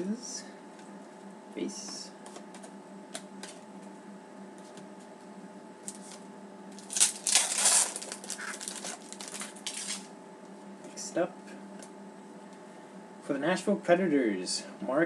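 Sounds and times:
foil wrapper crinkling: 6.8s - 10.1s.

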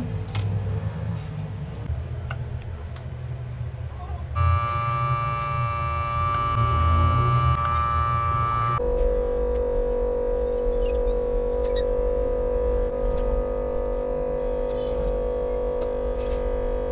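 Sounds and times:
low hum: 3.4s - 16.9s
steady electronic tone: 4.4s - 16.9s.

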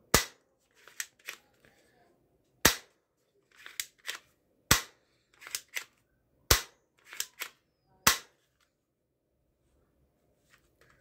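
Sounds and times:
toy gun slide clicks: 0.8s - 1.5s, 3.5s - 4.2s, 5.4s - 6.0s, 7.0s - 7.6s
toy gun firing snaps: 6.5s - 8.3s.

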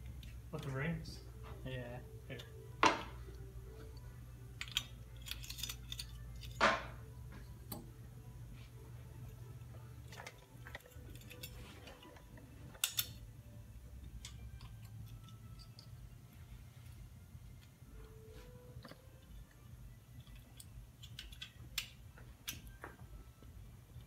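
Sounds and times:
steady low hum: 0.0s - 24.0s
metal parts and tools clinking: 3.9s - 7.9s, 10.0s - 13.3s, 14.0s - 16.1s, 18.8s - 22.8s.

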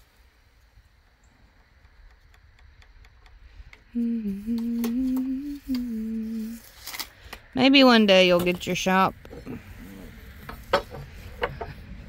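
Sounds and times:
person humming: 3.9s - 6.6s.

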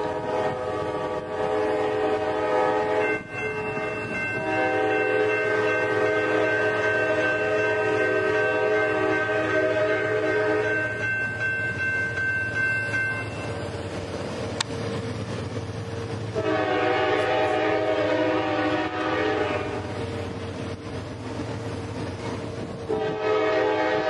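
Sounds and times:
locomotive air horn: 0.0s - 10.8s, 16.3s - 19.9s, 22.9s - 24.0s.

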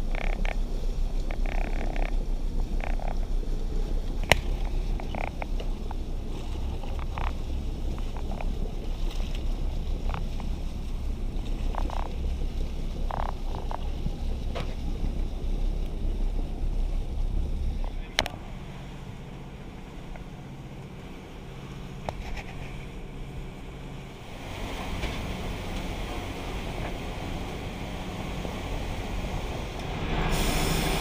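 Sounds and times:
boat engine humming: 0.0s - 31.0s
loud low rumble: 0.0s - 31.0s
wind buffeting microphone: 0.0s - 31.0s
loud hiss: 27.1s - 31.0s.

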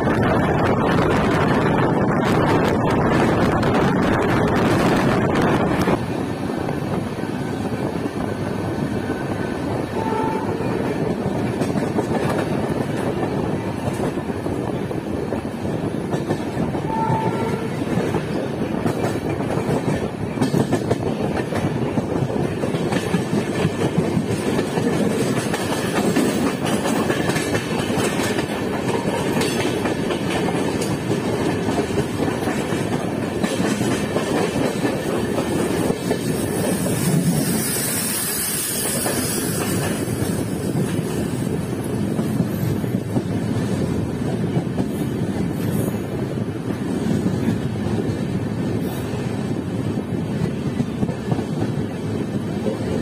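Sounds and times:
clickety-clack over rail joints: 0.0s - 53.0s
electric train passing close: 0.0s - 53.0s
train wheels on rails: 0.0s - 53.0s
high train toots: 8.7s - 11.8s, 16.6s - 19.1s, 31.8s - 41.5s.

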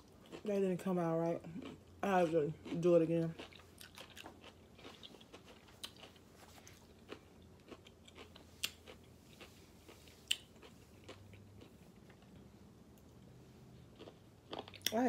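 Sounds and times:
person chewing food: 0.0s - 0.5s, 1.4s - 15.0s.

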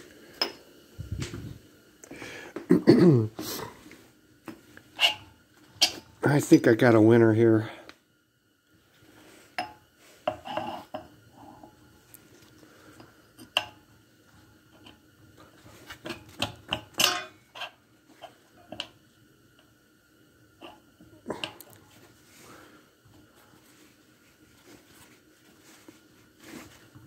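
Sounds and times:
metal clinks and scrapes: 5.0s - 6.0s.

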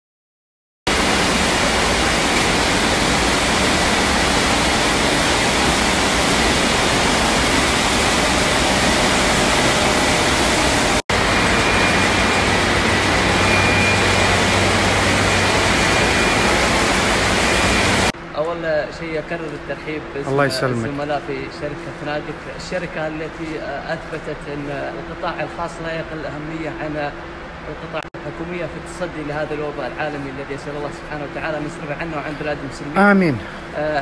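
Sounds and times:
faint high whines: 8.4s - 18.1s.

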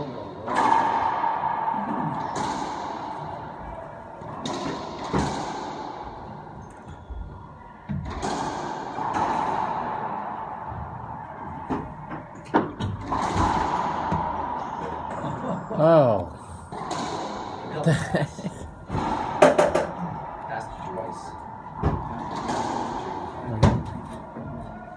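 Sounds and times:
ball cracking off racquet and walls: 11.4s - 15.1s, 21.8s - 24.3s.

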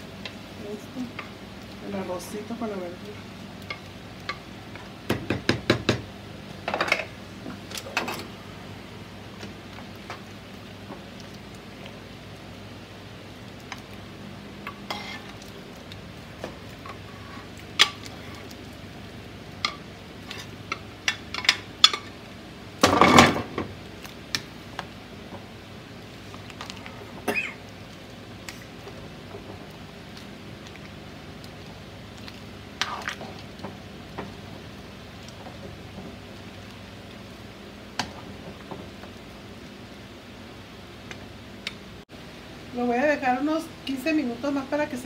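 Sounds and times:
wooden spoon knocking a frying pan: 5.1s - 6.1s.

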